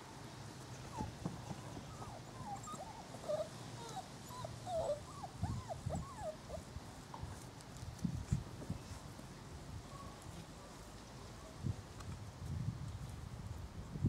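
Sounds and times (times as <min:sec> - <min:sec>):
puppies whining: 0:00.9 - 0:06.7.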